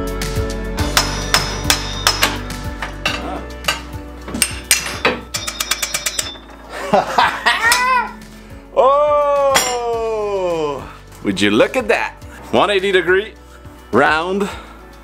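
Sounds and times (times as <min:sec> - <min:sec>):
background music: 0:00.0 - 0:15.0
metallic clicks and clanks: 0:03.1 - 0:06.7.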